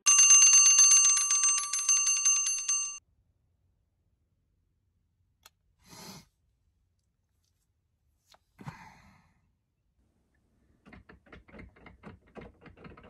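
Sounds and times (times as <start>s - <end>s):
alarm clock bells ringing: 0.0s - 3.0s.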